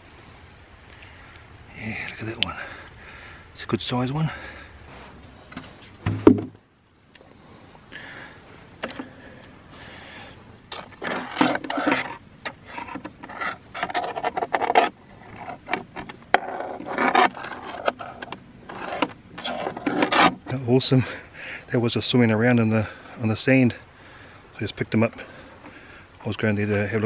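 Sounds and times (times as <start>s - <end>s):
crayfish scratching on plastic: 10.7s - 20.6s.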